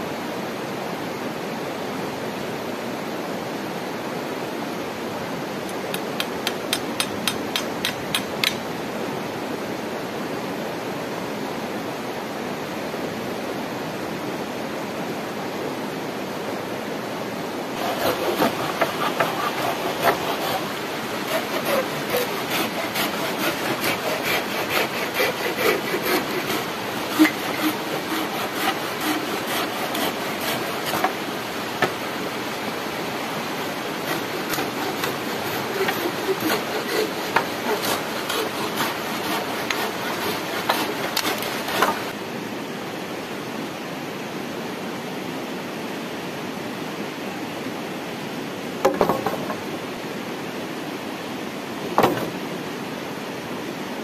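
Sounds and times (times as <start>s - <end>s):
knife scraping wooden pole: 5.7s - 8.6s, 17.8s - 32.0s, 33.6s - 42.2s
flowing water: 16.6s - 42.4s.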